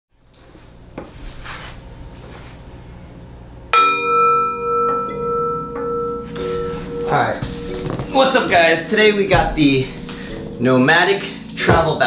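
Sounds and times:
singing bowl ringing: 0:03.7 - 0:12.0
faint shuffling: 0:06.4 - 0:11.5.

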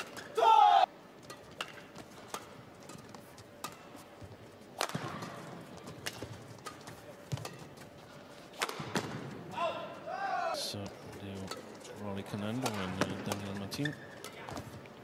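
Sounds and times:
faint hall ambience: 0:00.0 - 0:15.0
badminton rackets hitting shuttlecock: 0:01.2 - 0:04.1, 0:04.8 - 0:07.8, 0:08.5 - 0:09.2, 0:12.5 - 0:13.6.

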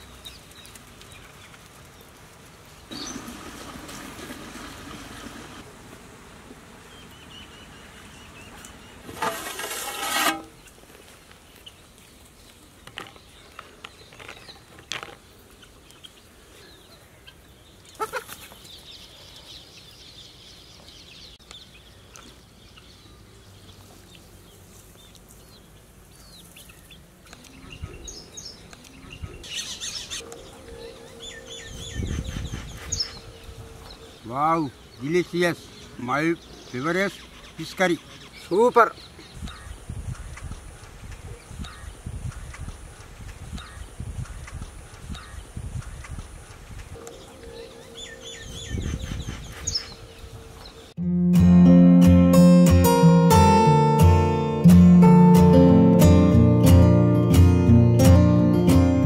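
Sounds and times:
birds calling: 0:02.8 - 0:03.4, 0:06.8 - 0:51.0.

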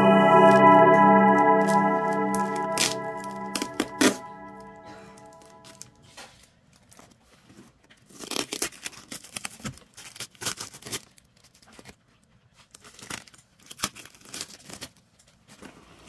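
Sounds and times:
plastic wrap crinkling and tearing: 0:08.1 - 0:12.0.

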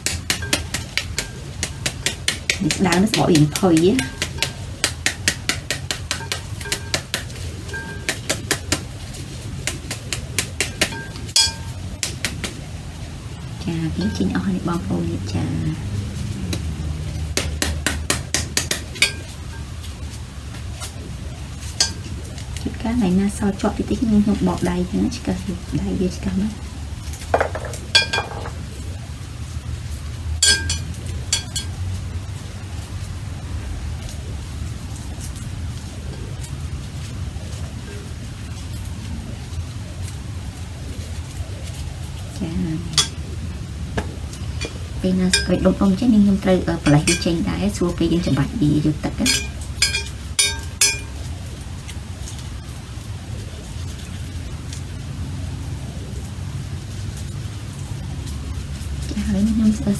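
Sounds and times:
metal spoon tapping pomegranate: 0:00.0 - 0:08.8, 0:10.5 - 0:12.4, 0:14.0 - 0:14.4, 0:17.4 - 0:19.4, 0:30.4 - 0:31.8, 0:44.6 - 0:45.9, 0:46.8 - 0:47.4, 0:49.2 - 0:51.2
steady low hum: 0:00.0 - 0:59.9
metal spoon clinking on glass bowl: 0:10.9 - 0:11.8, 0:27.6 - 0:28.5, 0:30.4 - 0:31.8, 0:44.6 - 0:45.7, 0:46.9 - 0:47.4, 0:49.2 - 0:51.2.

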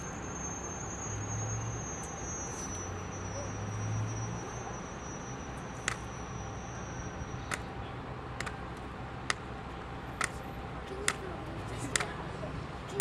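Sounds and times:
thin high whine: 0:00.0 - 0:07.6
outdoor background hum: 0:00.0 - 0:13.0.

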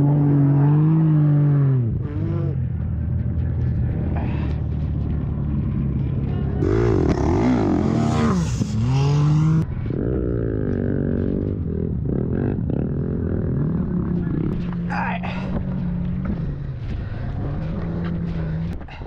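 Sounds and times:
dirt bike engine revving: 0:06.6 - 0:14.9.

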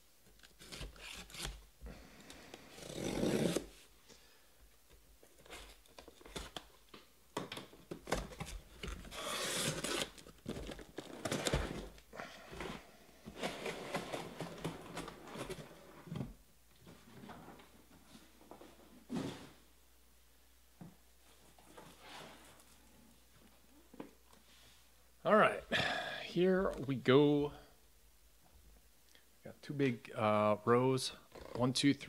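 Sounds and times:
cardboard scraping and rustling: 0:12.6 - 0:16.4.

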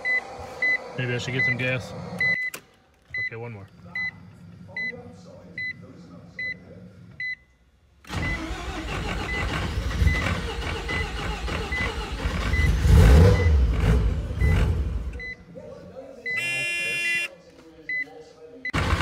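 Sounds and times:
engine starter cranking: 0:08.1 - 0:13.7, 0:18.8 - 0:19.0
high electronic warning beep: 0:16.3 - 0:17.3.

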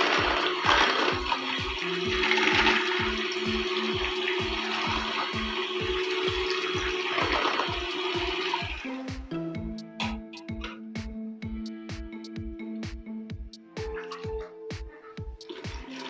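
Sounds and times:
electric hand mixer whirring: 0:00.0 - 0:08.9
background music with a beat: 0:00.0 - 0:16.0.

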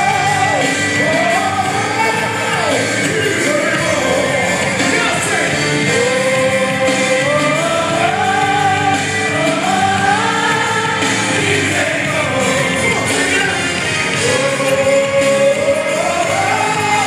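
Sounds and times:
full band accompaniment: 0:00.0 - 0:17.0
person singing gospel: 0:00.0 - 0:17.0.

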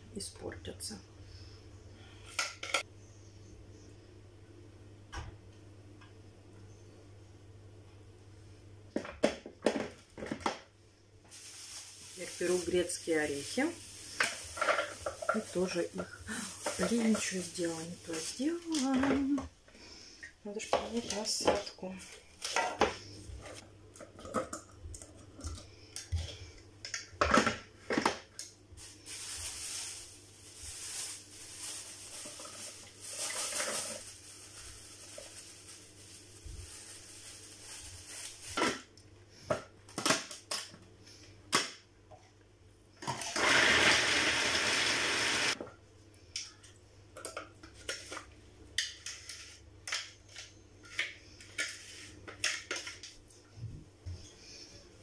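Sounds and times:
food processor chopping nuts: 0:43.0 - 0:45.6.

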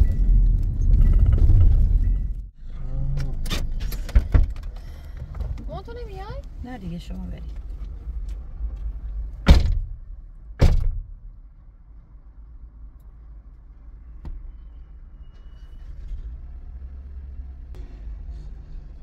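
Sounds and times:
low steady rumble: 0:00.0 - 0:19.0
car doors slamming shut: 0:09.4 - 0:10.0, 0:10.6 - 0:11.2.

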